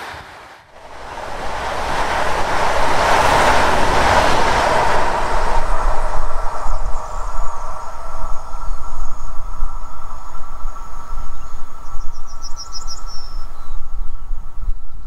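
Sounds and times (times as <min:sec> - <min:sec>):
train passing at speed: 0:00.0 - 0:14.9
faint steady whine: 0:00.0 - 0:15.0
low uneven rumble: 0:00.7 - 0:12.5.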